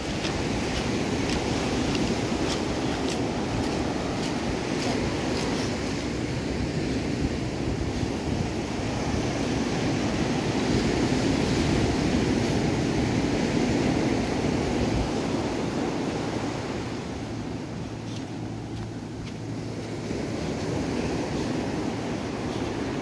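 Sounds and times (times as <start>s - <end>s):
ocean surf on sandy beach: 0.0s - 23.0s
wind buffeting microphone: 0.0s - 23.0s.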